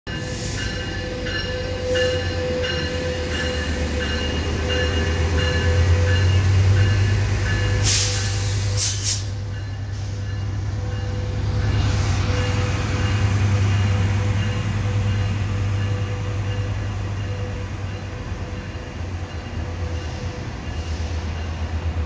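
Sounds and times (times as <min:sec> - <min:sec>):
locomotive bell ringing: 0:00.1 - 0:21.9
locomotive engine drone: 0:00.1 - 0:22.0
air hissing: 0:07.8 - 0:10.3.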